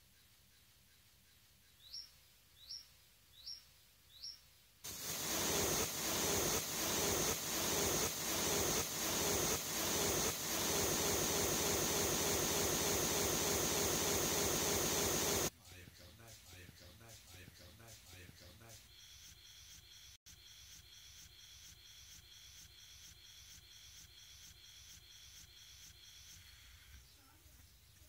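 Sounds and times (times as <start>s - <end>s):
loud even rushing noise: 4.9s - 15.5s
short rising chirps: 4.9s - 15.5s.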